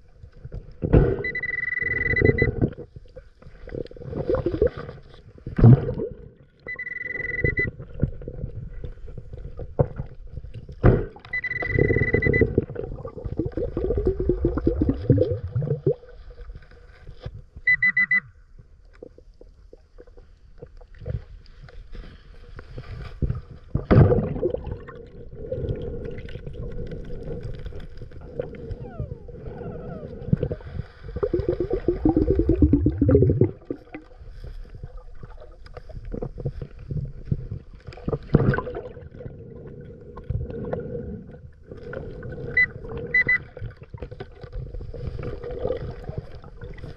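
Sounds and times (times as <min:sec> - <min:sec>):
metal detector high beep: 0:01.2 - 0:02.6, 0:06.7 - 0:07.7, 0:11.3 - 0:12.5, 0:17.7 - 0:18.3, 0:42.6 - 0:43.4
underwater air bubbles gurgling: 0:02.2 - 0:06.6, 0:07.7 - 0:16.2, 0:23.7 - 0:46.9.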